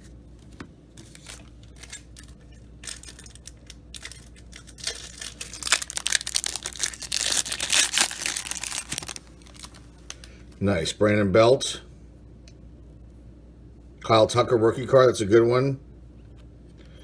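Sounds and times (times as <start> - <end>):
foil wrapper crinkling and tearing: 1.0 - 10.2.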